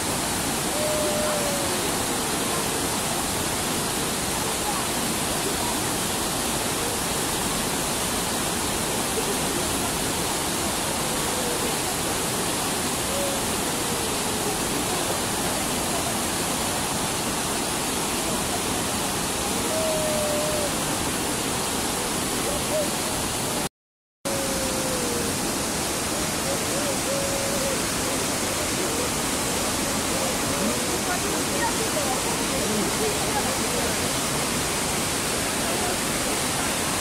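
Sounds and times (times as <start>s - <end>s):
river rapids roaring: 24.3s - 37.0s.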